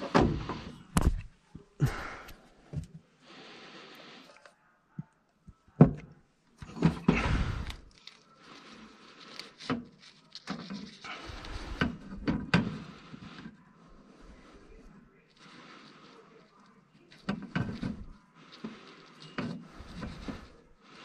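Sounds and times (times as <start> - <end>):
handling rustling: 6.6 - 12.2.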